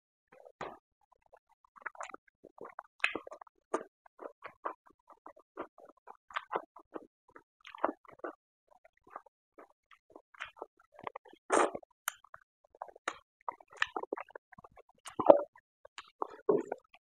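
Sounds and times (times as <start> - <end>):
person chewing and mouth smacks: 0.6 - 8.4, 9.0 - 17.0.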